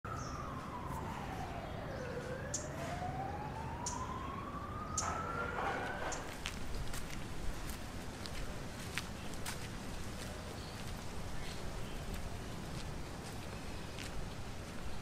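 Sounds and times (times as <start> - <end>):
background noise: 0.0 - 15.0
siren-like sliding tone: 0.1 - 6.3.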